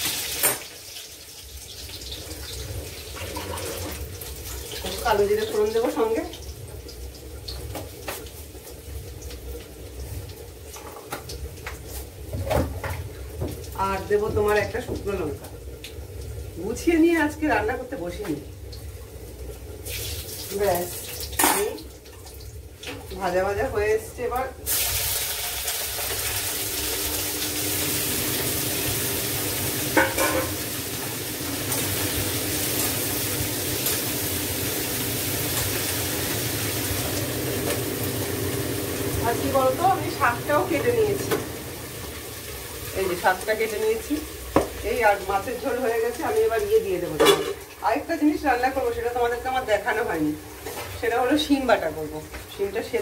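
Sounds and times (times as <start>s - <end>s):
vegetables sizzling in oil: 0.0s - 53.0s
metal containers clinking: 29.9s - 30.6s.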